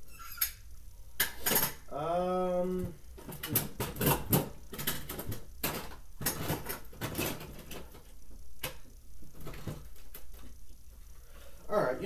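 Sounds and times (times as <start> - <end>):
hard objects clattering and knocking: 3.2 - 8.1.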